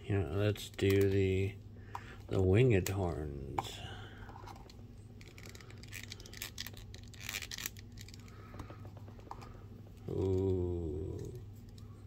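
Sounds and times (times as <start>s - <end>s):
small plastic parts clicking: 4.5s - 9.5s.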